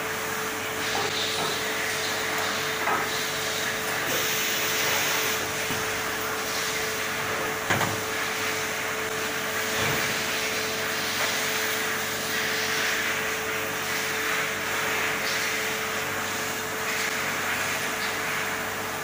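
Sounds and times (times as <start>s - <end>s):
machine hiss: 0.7s - 5.6s.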